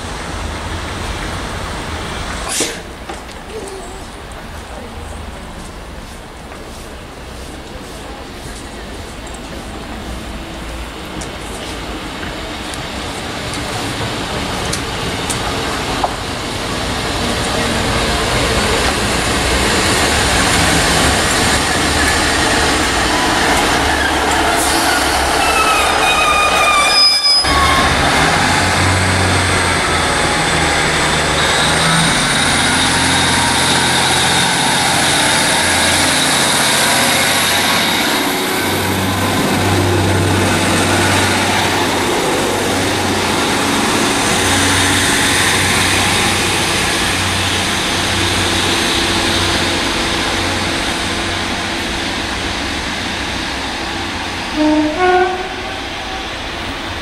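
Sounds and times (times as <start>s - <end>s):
train wheels and brakes squealing: 21.6s - 42.3s.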